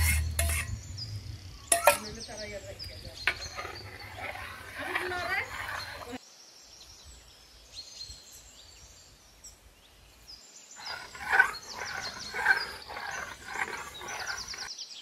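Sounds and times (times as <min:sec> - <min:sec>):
metal spoon stirring in metal pan: 0:00.0 - 0:00.8, 0:01.7 - 0:02.1, 0:03.2 - 0:06.2, 0:10.8 - 0:14.7
birds chirping: 0:00.0 - 0:06.2, 0:06.8 - 0:14.7.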